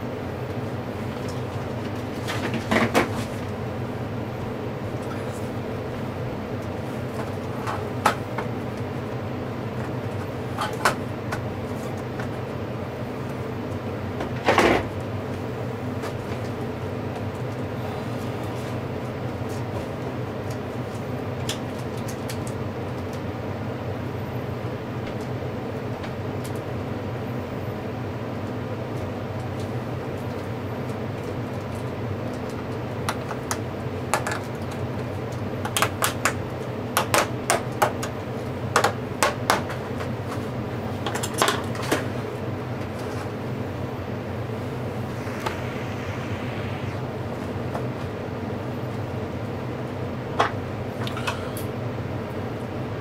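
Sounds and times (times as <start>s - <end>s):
steady low hum: 42.0s - 53.0s.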